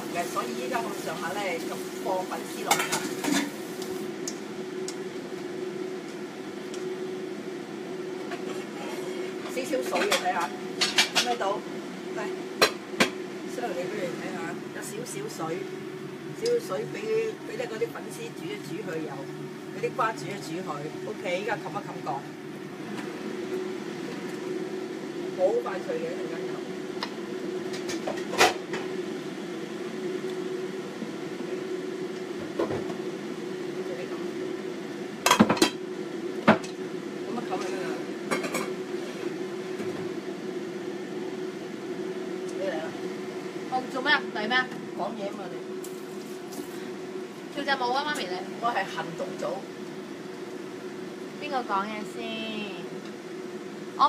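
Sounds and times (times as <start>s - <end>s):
faint hiss from cooking pan: 0.0s - 9.4s
kitchen fan whirring: 0.0s - 54.0s.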